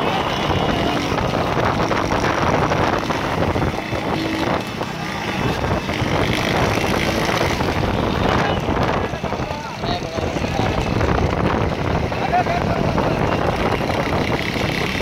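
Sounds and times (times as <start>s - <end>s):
motorcycle engines: 0.0s - 15.0s
wind on microphone: 0.0s - 15.0s.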